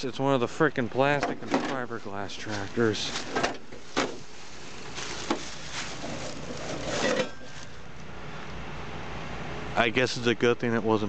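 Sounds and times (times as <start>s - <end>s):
dry leaves crunching underfoot: 1.7s - 8.0s.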